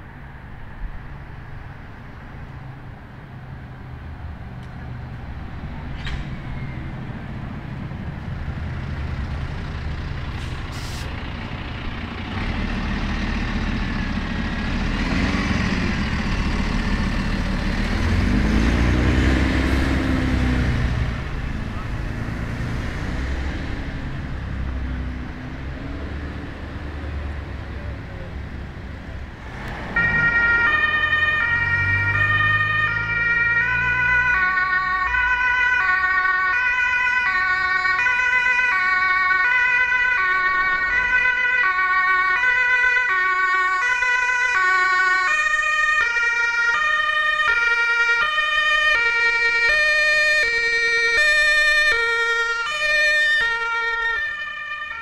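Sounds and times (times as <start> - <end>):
traffic noise: 0.0 - 55.0
vehicle engine: 0.0 - 55.0
two-tone ambulance siren: 29.9 - 55.0.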